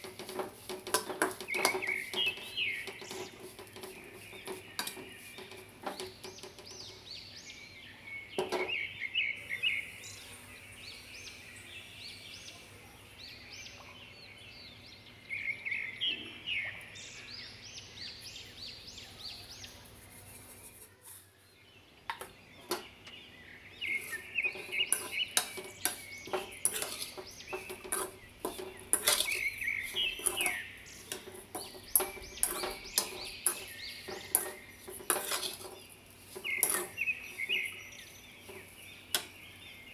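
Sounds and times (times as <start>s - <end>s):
spoon scraping in metal pan: 0.0s - 7.1s, 8.4s - 8.7s, 23.8s - 39.4s.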